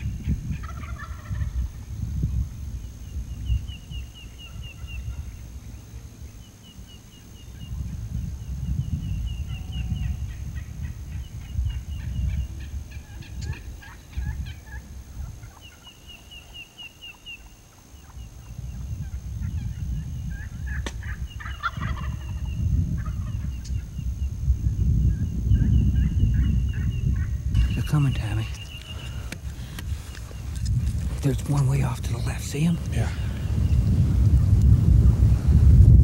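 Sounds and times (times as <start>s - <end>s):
wind rumbling on microphone: 0.0s - 16.6s, 17.2s - 36.0s
turkeys gobbling: 0.5s - 1.8s, 12.0s - 23.7s.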